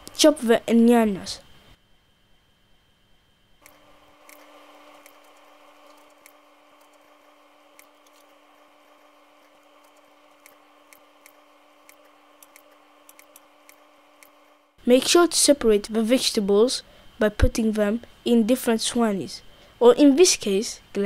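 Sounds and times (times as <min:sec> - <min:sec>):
faint hum: 0:00.0 - 0:21.0.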